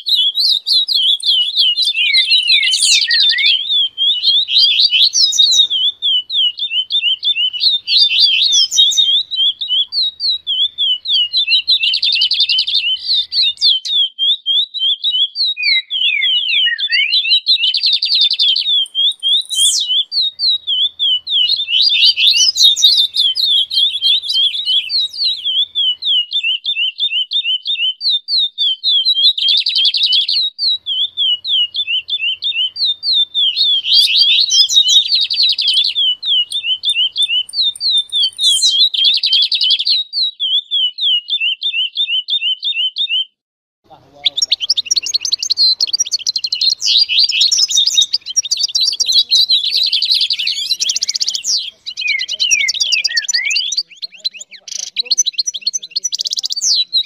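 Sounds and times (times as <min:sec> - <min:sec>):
buzzy bird trills: 0:00.0 - 0:15.2, 0:15.8 - 0:42.8
songbirds chirping: 0:00.0 - 0:43.3, 0:43.9 - 0:57.0.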